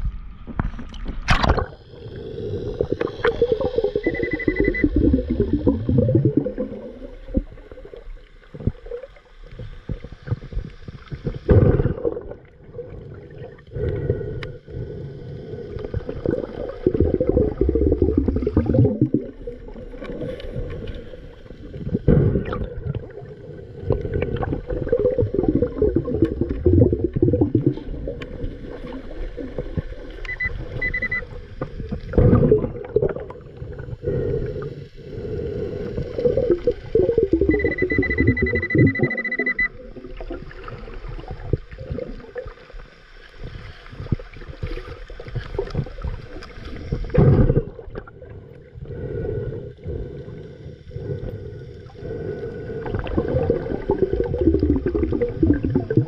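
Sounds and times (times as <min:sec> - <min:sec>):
bubbles rumbling: 0:00.0 - 0:14.4, 0:15.6 - 0:34.3, 0:35.7 - 0:48.8, 0:52.7 - 0:56.0
diver breathing through regulator: 0:01.7 - 0:06.5, 0:13.5 - 0:19.2, 0:20.0 - 0:29.0, 0:33.6 - 0:39.6, 0:47.0 - 0:55.6
short high beeps: 0:04.0 - 0:05.0, 0:30.2 - 0:31.2, 0:37.4 - 0:39.8.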